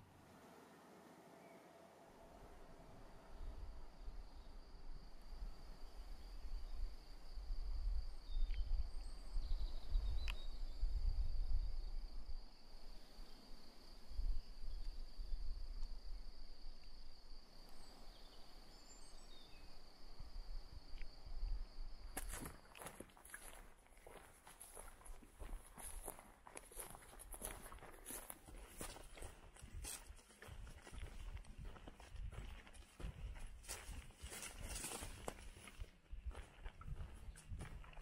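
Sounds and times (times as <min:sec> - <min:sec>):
wind rumble on microphone: 0:03.3 - 0:13.3, 0:28.7 - 0:38.0
high-pitched insect song: 0:03.3 - 0:32.1
faint bird chirps: 0:08.2 - 0:12.2.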